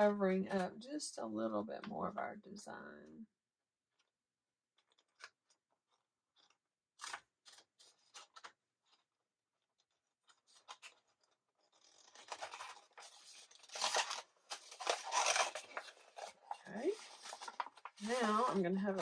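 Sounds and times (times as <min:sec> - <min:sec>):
photo paper crinkling and rustling: 0:04.0 - 0:19.0.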